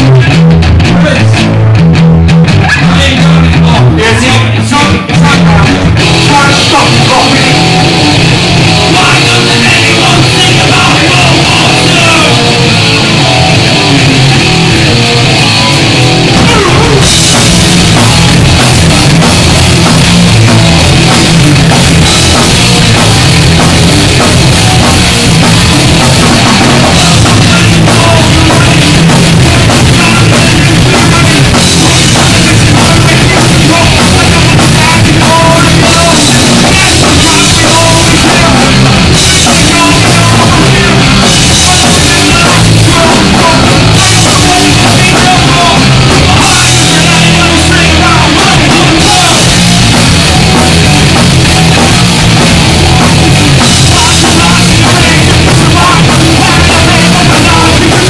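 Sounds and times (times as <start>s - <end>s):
punk band playing live: 0.0s - 58.0s
shouted vocals: 8.6s - 18.3s, 26.3s - 51.0s.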